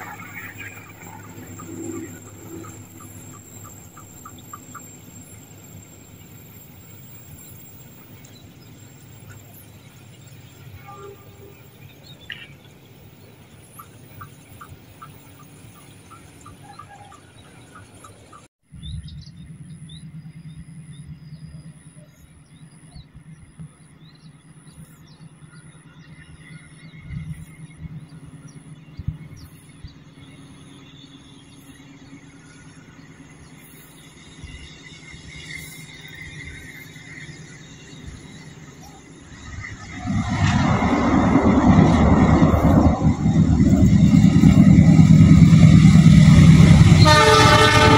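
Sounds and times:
birds chirping: 0:00.0 - 0:45.6
steady low rumble: 0:18.7 - 0:47.0.

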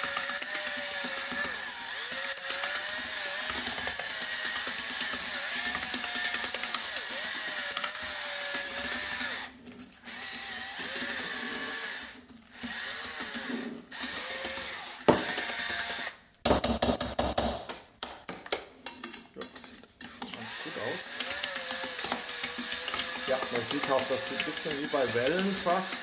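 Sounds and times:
whisk creaming in steel bowl: 0:00.0 - 0:09.5, 0:20.0 - 0:26.0
drill motor whining: 0:00.0 - 0:16.2, 0:20.0 - 0:26.0.

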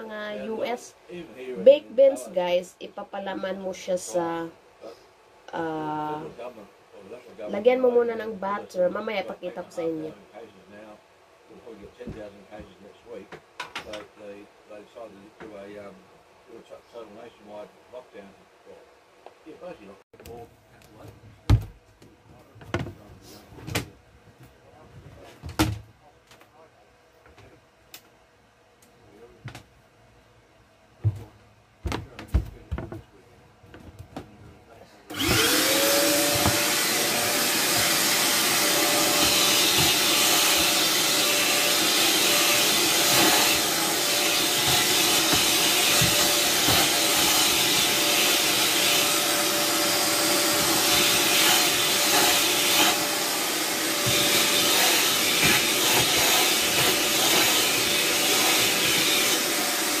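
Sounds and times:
vacuum cleaner motor whine: 0:35.1 - 1:00.0.

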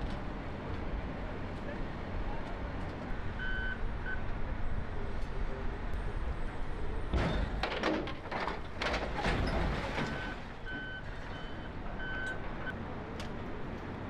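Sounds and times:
diesel machinery rumbling: 0:00.0 - 0:14.0
reversing alarm beeping: 0:03.4 - 0:04.2, 0:10.1 - 0:12.4.

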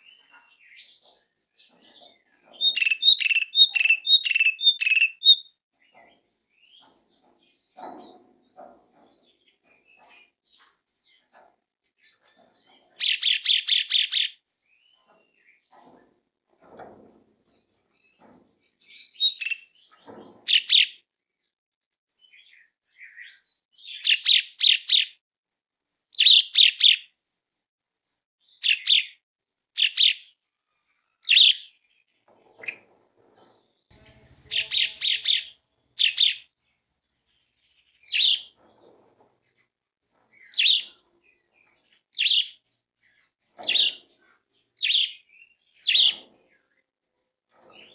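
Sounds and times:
starling calling harshly: 0:34.4 - 0:36.4.

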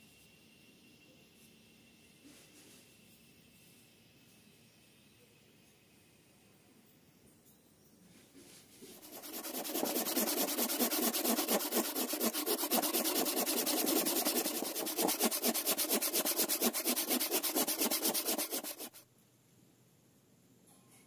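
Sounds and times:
handsaw cutting wood: 0:08.9 - 0:19.0.

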